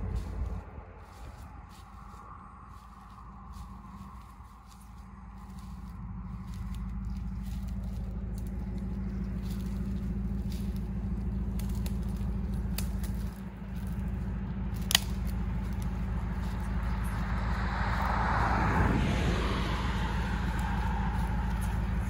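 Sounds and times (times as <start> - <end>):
footsteps through dry brush: 0.0 - 22.0
low rumble: 0.0 - 22.0
twigs snapping: 0.2 - 18.6, 19.3 - 22.0.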